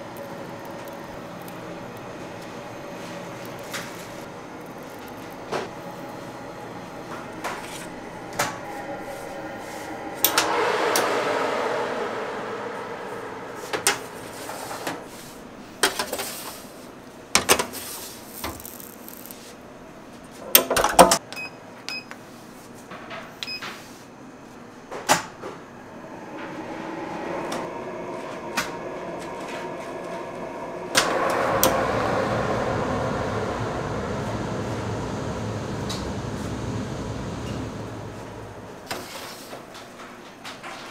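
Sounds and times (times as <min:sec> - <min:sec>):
rushing machine noise: 0:00.0 - 0:16.1, 0:25.6 - 0:39.8.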